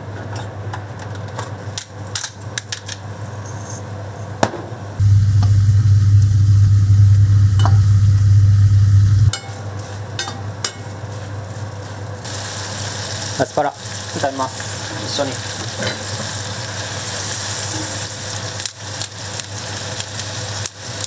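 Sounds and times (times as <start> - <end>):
loud low hum: 5.0 - 9.3
potato wedges frying: 5.0 - 21.0.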